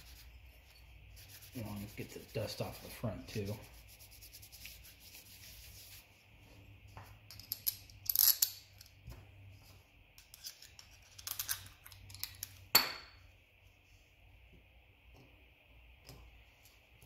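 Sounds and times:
paper towel wiping plastic: 0.0 - 0.4, 1.1 - 6.2.

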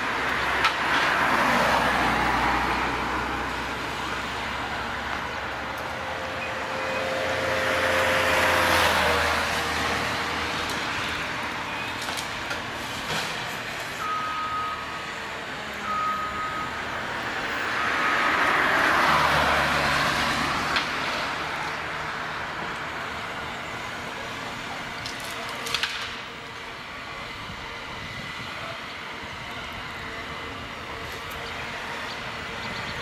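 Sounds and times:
short beeps: 14.0 - 15.0, 15.9 - 16.8.

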